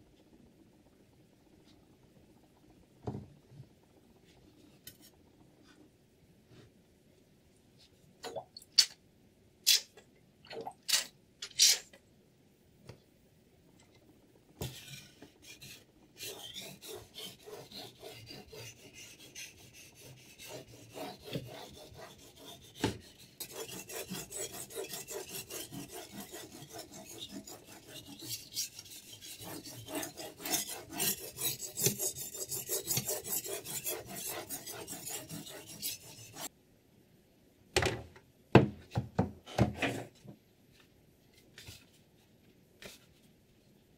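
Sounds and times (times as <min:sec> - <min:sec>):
whetstone rasping on knife blade: 0:23.4 - 0:36.5.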